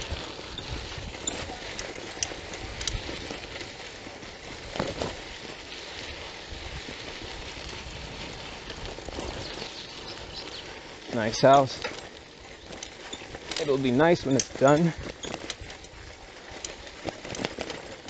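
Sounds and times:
bicycle tyres rolling on dirt: 0.0 - 18.0.

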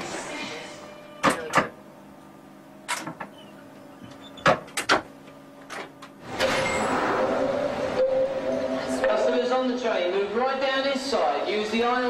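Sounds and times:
steady rushing noise with hum: 6.2 - 11.7.

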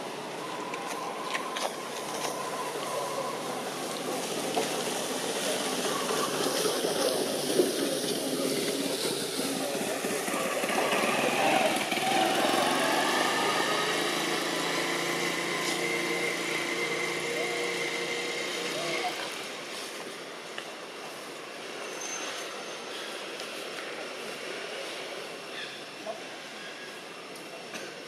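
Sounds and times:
passing motor vehicles: 0.0 - 25.4.

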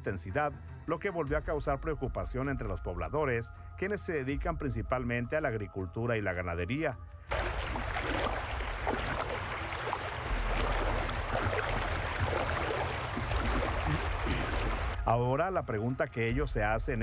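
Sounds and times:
floodwater rushing: 7.3 - 15.0.

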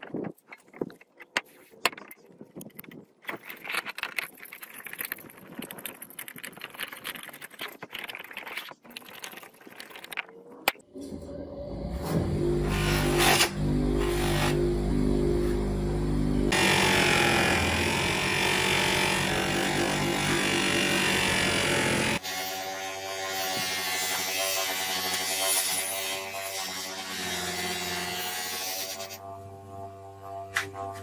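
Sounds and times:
bench grinder motor hum: 11.6 - 31.0.

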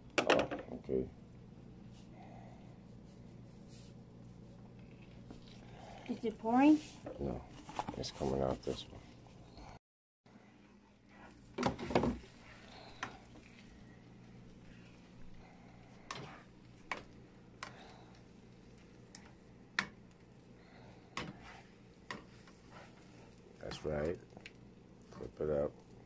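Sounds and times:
low steady hum: 0.0 - 26.0
spatula scraping frying pan: 21.3 - 23.3.

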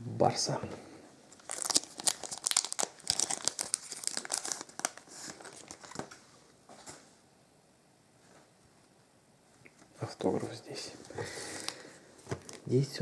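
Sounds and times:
foil wrapper crinkling: 1.3 - 6.2, 11.6 - 12.8.

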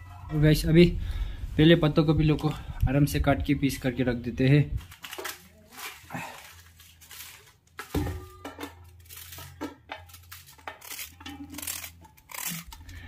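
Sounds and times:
pots and utensils clinking: 7.8 - 13.0.

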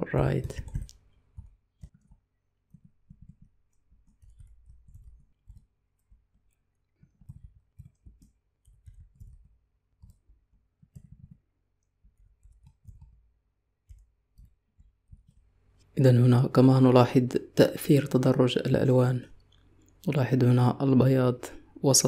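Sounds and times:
faint keyboard typing: 0.0 - 16.3.

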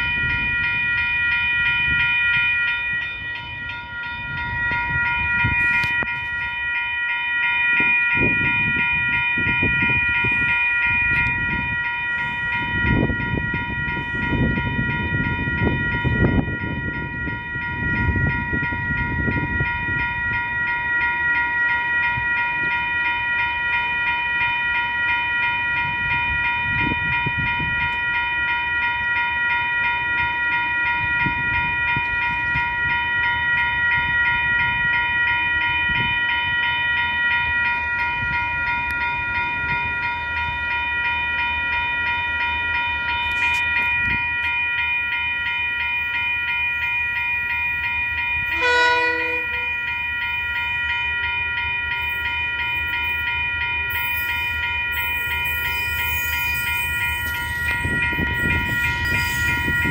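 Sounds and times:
level crossing bells ringing: 0.0 - 59.9
locomotive horn blast: 48.5 - 49.9.

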